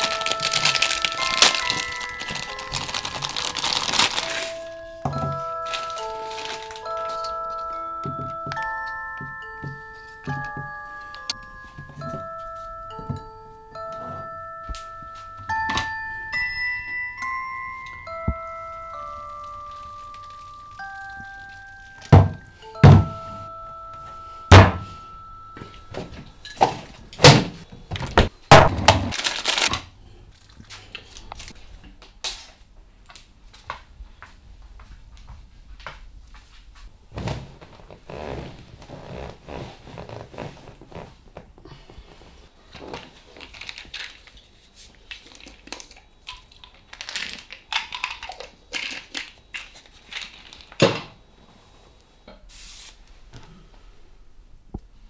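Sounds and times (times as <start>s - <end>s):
rustling: 0.0s - 8.9s, 18.2s - 28.2s
chime-like ringing notes: 0.0s - 27.2s.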